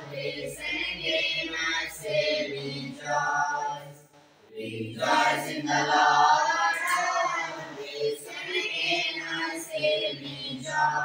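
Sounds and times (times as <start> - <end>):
boys singing unaccompanied: 0.0 - 11.0.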